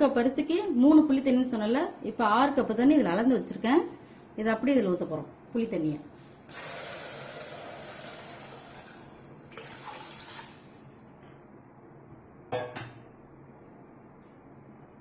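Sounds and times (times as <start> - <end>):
water pouring and splashing: 6.5 - 10.8.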